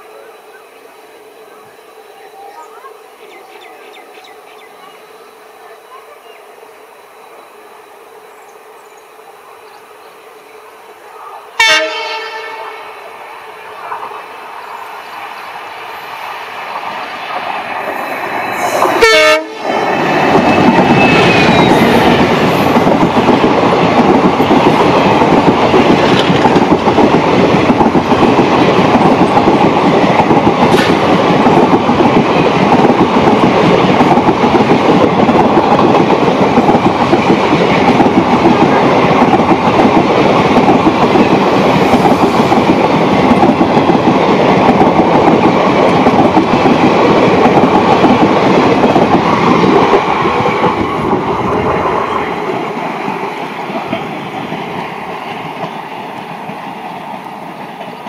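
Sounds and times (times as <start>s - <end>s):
train wheels rushing on rails: 0.0s - 58.0s
clickety-clack over rail joints: 16.5s - 58.0s.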